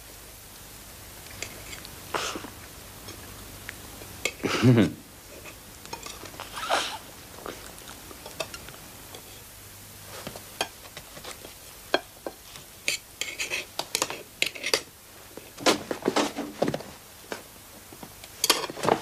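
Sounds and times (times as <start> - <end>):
cutlery clinking on plates: 5.4 - 6.3, 18.4 - 19.0.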